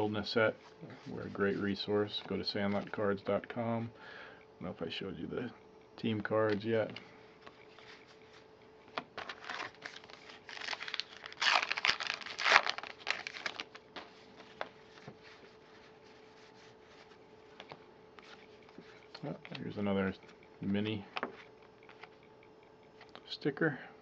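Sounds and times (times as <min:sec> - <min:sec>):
wrapper tearing and crinkling: 0:09.2 - 0:13.9.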